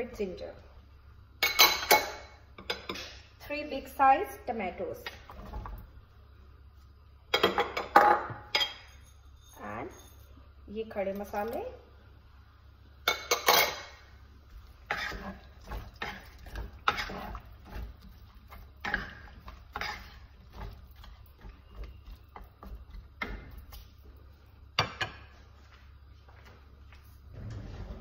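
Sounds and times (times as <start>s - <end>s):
wooden spatula scraping pot: 14.5s - 24.3s.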